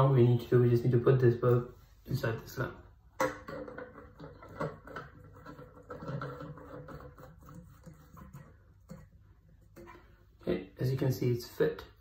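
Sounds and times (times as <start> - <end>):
bulb and lampshade rubbing: 4.2 - 10.2.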